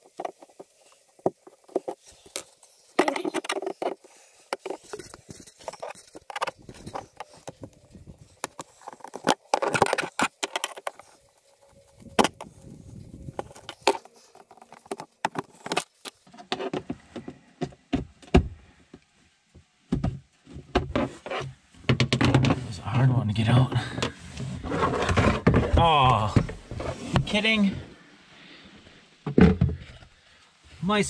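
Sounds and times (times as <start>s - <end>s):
plastic rattling: 0.0s - 16.8s.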